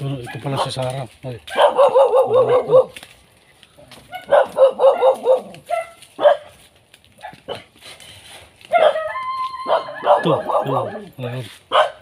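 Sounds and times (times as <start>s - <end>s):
dog barking: 0.2s - 0.9s, 1.5s - 3.0s, 4.0s - 6.6s, 7.2s - 7.7s, 8.7s - 12.0s.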